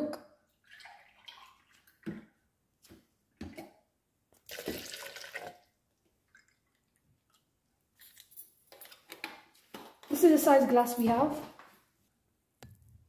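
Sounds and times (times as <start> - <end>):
milk pouring into blender jar: 0.6 - 2.3, 4.4 - 7.4.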